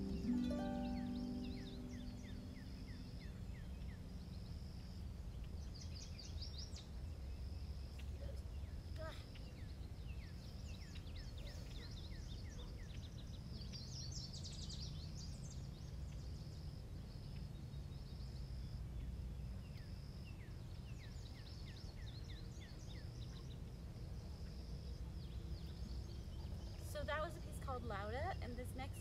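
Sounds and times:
high insect trill: 0:00.0 - 0:08.0
birds chirping: 0:00.0 - 0:16.4.

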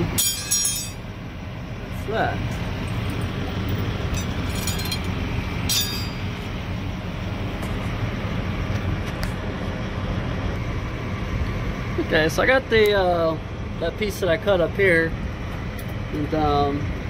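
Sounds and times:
diesel engine idling: 0:00.0 - 0:17.0
metallic clinks: 0:00.2 - 0:01.0, 0:02.8 - 0:05.1, 0:05.7 - 0:06.3.

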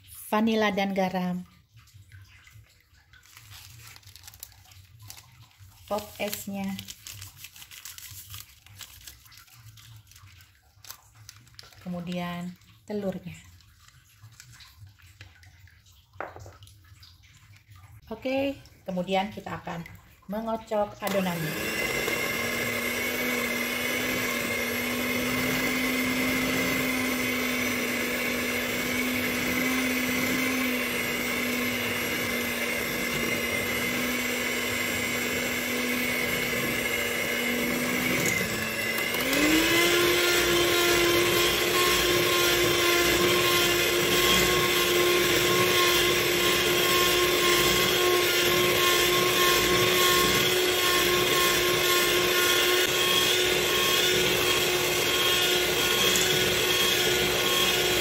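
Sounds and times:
electric hand mixer whining: 0:21.0 - 0:58.0.

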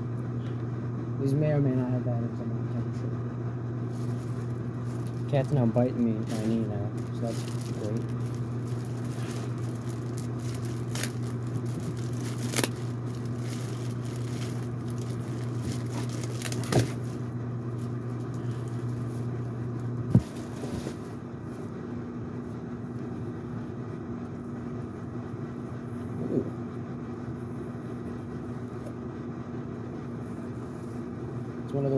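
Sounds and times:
steady low hum: 0:00.0 - 0:31.9
cardboard box being rummaged: 0:03.9 - 0:17.2, 0:20.1 - 0:21.1.

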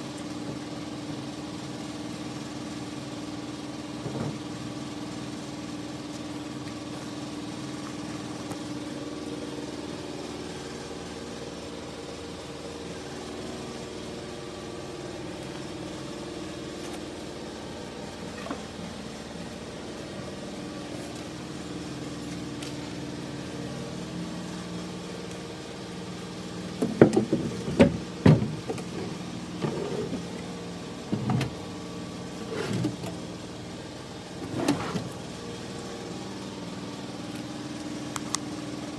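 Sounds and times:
steady machine hum: 0:00.0 - 0:38.9
wooden drawers knocking shut: 0:26.8 - 0:28.8
drawer slides rattling: 0:29.6 - 0:30.2, 0:34.4 - 0:35.1.

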